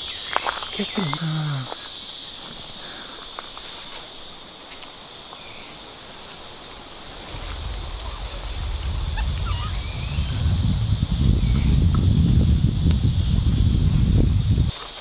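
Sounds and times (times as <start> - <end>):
high-pitched insect chorus: 0.0 - 15.0
low rumble: 7.0 - 14.7.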